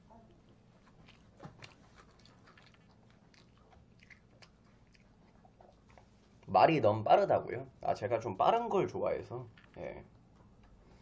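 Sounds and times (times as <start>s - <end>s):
chewing food: 0.2s - 6.5s.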